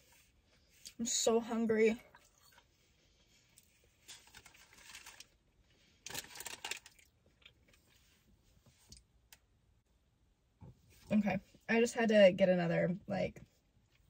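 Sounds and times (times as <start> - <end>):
paper wrapper crinkling: 4.0 - 5.4, 6.0 - 7.5.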